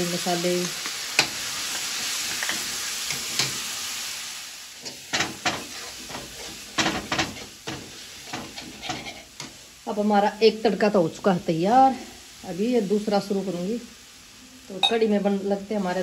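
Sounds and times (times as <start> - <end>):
masala sizzling in a pan: 0.0 - 16.0
steel spoon scraping a pan: 4.8 - 9.6.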